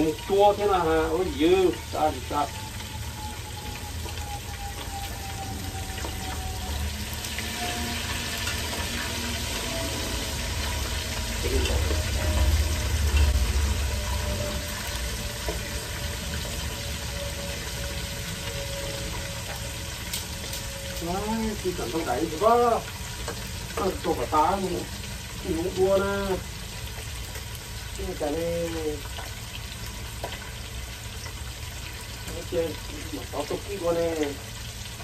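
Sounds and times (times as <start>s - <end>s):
fish sizzling in hot oil: 0.0s - 35.0s
low rumble: 0.7s - 23.0s.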